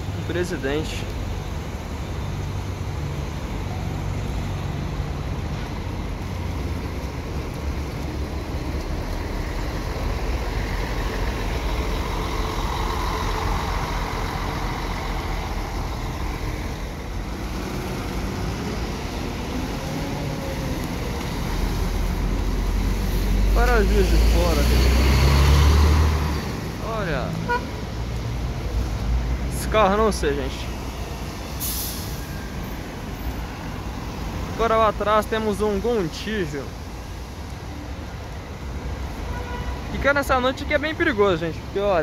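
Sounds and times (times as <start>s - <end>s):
coach diesel engine passing: 0.0s - 37.0s.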